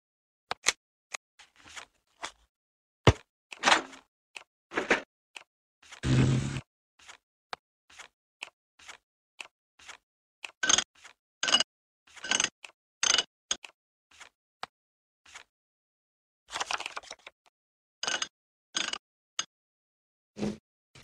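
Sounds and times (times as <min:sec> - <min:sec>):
louder scrapes: 0:06.0 - 0:06.6.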